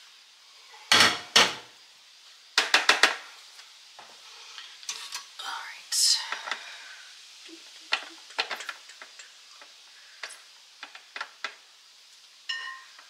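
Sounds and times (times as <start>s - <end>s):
utensils and pans clicking: 0.9s - 1.6s, 2.6s - 3.2s, 7.7s - 11.6s, 12.5s - 13.0s.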